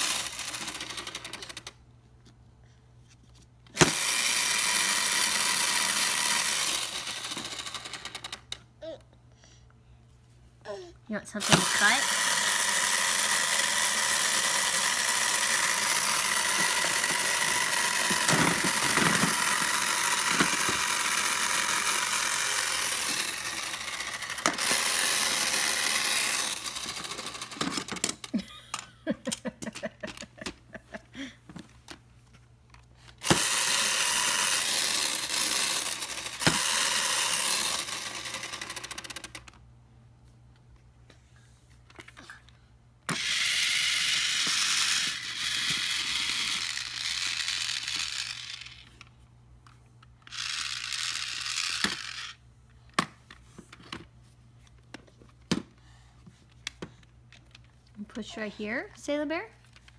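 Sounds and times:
toy saw whirring: 0.0 - 1.8, 3.7 - 8.6, 11.4 - 28.8, 33.1 - 39.6, 43.1 - 49.1, 50.2 - 52.4.

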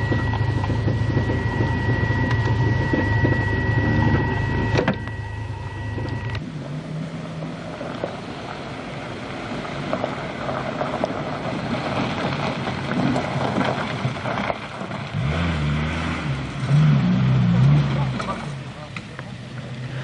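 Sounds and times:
vehicle engine: 0.0 - 20.0
vehicle on gravel rushing noise: 0.0 - 20.0.

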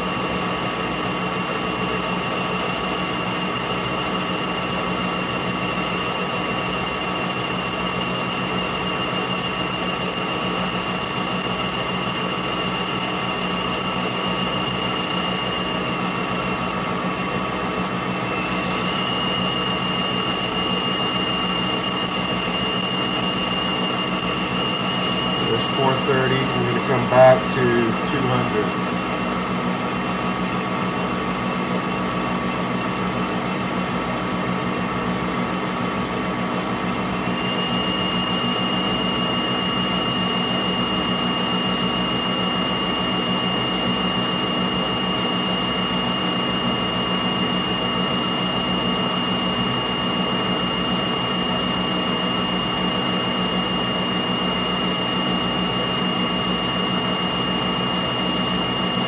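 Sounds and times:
metal lathe humming and whining: 0.0 - 59.0
high steady whine: 18.3 - 33.7.

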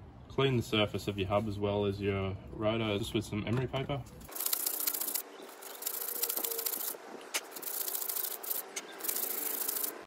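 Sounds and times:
emery paper rubbing on metal: 4.3 - 10.0.

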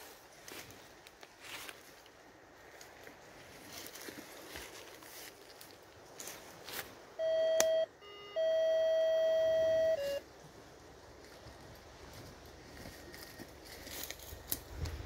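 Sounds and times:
metal detector beeps: 7.2 - 10.2.

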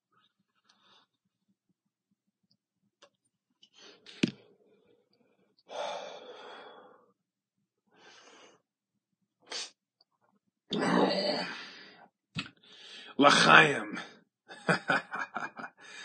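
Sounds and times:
person breathing while smoking: 5.7 - 7.1, 8.0 - 8.6, 12.6 - 13.1.

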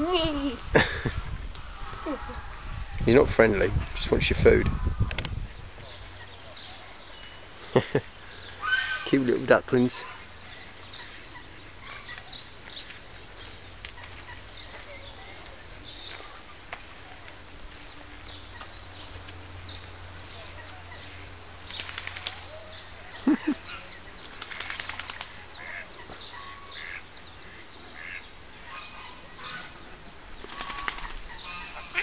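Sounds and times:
ducklings peeping: 17.9 - 32.0.

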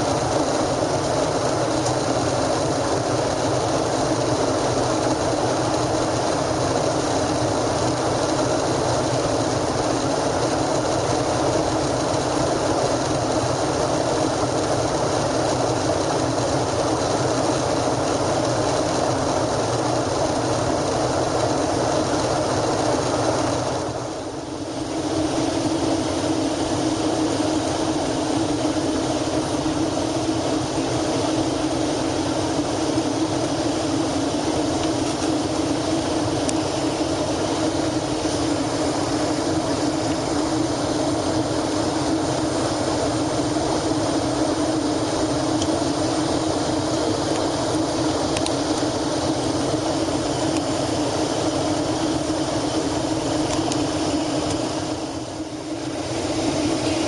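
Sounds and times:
air rushing along fuselage: 0.0 - 57.0
jet engines roaring: 0.0 - 57.0.

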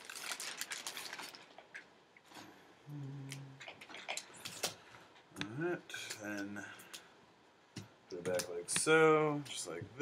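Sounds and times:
plastic packaging crinkling: 0.0 - 1.9.

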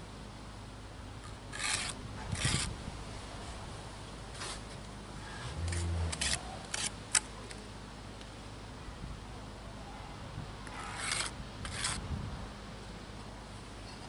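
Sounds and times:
trowel scraping brick and mortar: 1.5 - 2.7, 10.7 - 12.0
low hum: 5.0 - 7.3.

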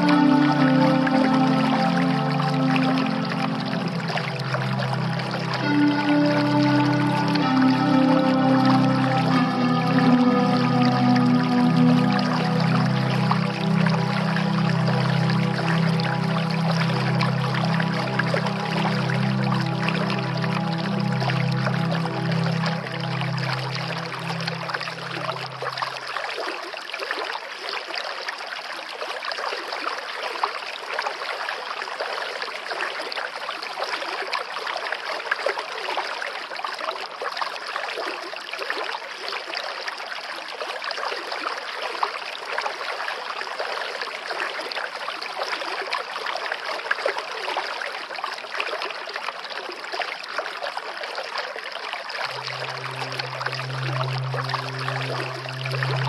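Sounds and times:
stream cascading over rocks: 52.2 - 56.0.

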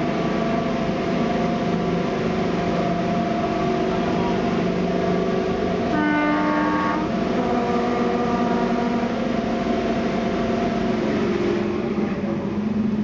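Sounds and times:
diesel locomotive engines working hard: 0.0 - 13.0
locomotive horn: 5.8 - 9.3.

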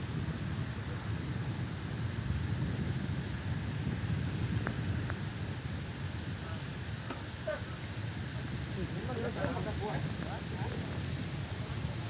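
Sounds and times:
wind buffeting microphone: 0.0 - 7.0, 7.8 - 12.0
faint clicks: 0.9 - 7.2.

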